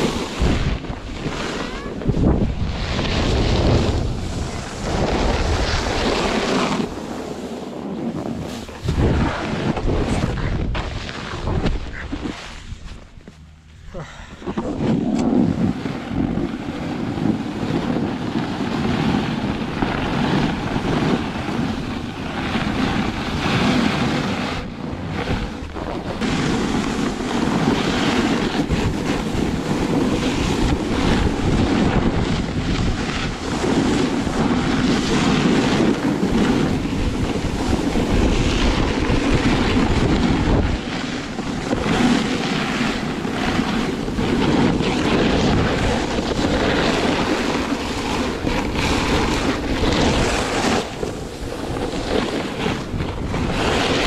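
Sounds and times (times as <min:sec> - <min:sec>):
snowboard scraping over snow: 0:00.0 - 0:54.0
wind buffeting microphone: 0:00.0 - 0:54.0.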